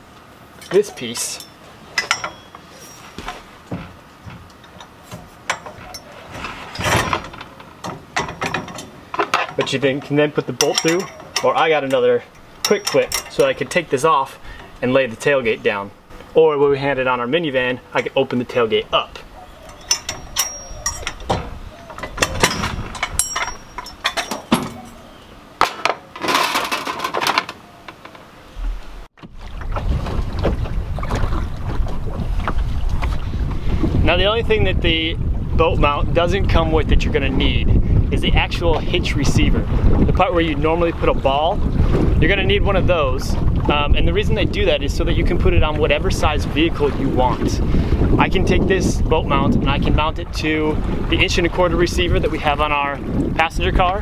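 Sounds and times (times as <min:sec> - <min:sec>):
metal clicks and knocks: 0:00.6 - 0:02.6, 0:03.3 - 0:13.6, 0:19.6 - 0:25.0
metal rattling scrape: 0:00.6 - 0:13.6, 0:19.7 - 0:25.1, 0:25.7 - 0:27.6
wind buffeting microphone: 0:18.7 - 0:25.4, 0:28.6 - 0:54.0.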